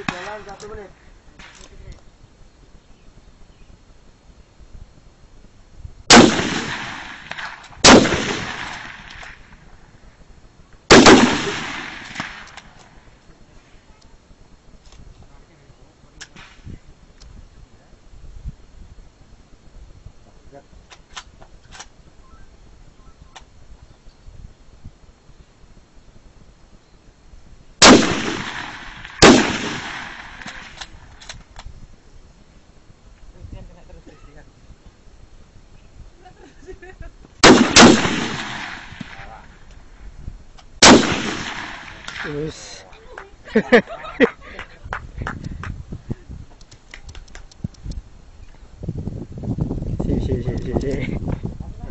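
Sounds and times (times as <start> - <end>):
rifle shots with echo: 0.0 - 0.6, 6.1 - 9.6, 10.9 - 12.8, 27.8 - 31.0, 37.4 - 39.5, 40.8 - 42.6
faint sharp clicks: 1.4 - 2.1, 46.5 - 48.6.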